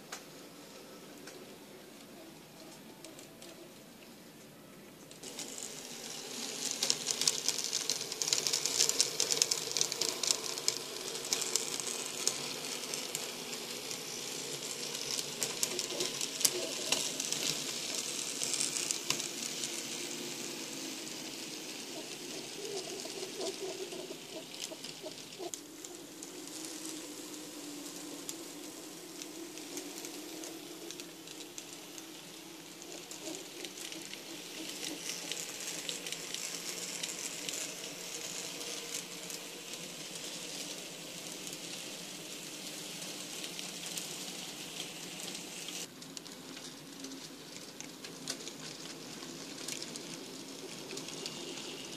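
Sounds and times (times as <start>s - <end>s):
model train wheels clattering: 0.0s - 51.9s
electric motor hum: 5.2s - 45.9s.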